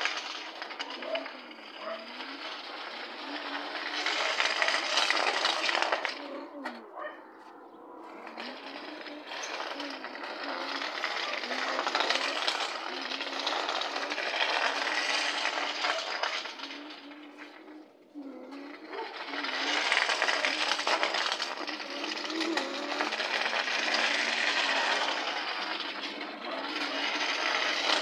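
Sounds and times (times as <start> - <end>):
model car motor whirring: 0.0 - 6.8, 8.1 - 28.0
wheels rattling on brick paving: 0.0 - 28.0.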